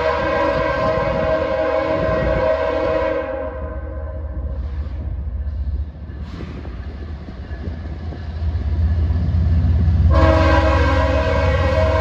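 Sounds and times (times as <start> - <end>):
locomotive air horn blast: 0.0 - 4.5, 10.0 - 12.0
diesel locomotive engine rumble: 0.0 - 12.0.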